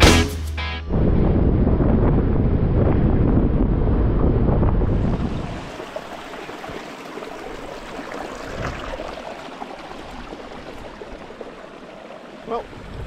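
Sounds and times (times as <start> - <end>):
music: 0.0 - 0.9
stream rushing: 4.8 - 13.0.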